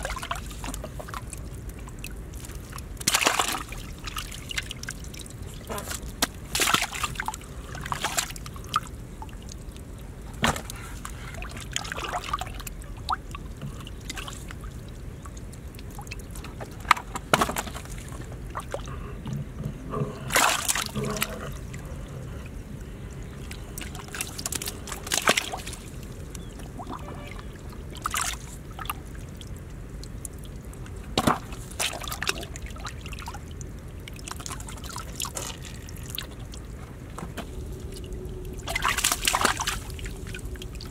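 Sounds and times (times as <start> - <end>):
muddy water sloshing: 0.0 - 40.9
water splashing: 0.0 - 40.9.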